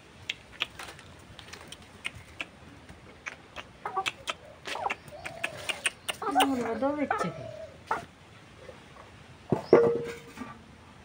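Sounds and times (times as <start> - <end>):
chicken clucking softly: 3.1 - 9.1.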